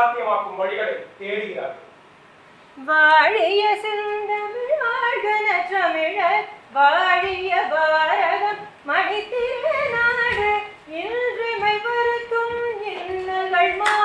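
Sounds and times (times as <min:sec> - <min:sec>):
woman singing slow melody: 0:02.8 - 0:14.0.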